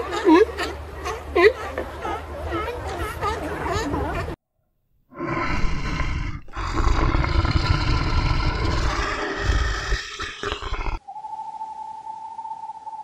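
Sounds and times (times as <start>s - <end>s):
lion roaring: 5.2s - 11.0s.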